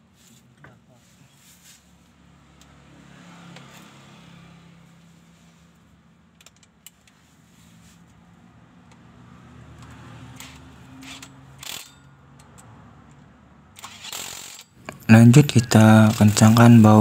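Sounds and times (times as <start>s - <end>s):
faint metallic clicks and scrapes: 9.8s - 15.0s.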